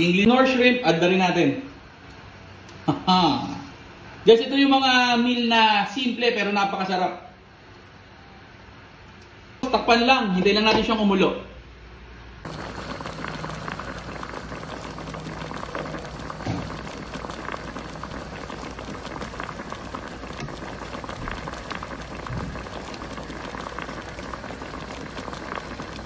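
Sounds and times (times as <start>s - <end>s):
broth boiling and popping: 12.4s - 26.0s.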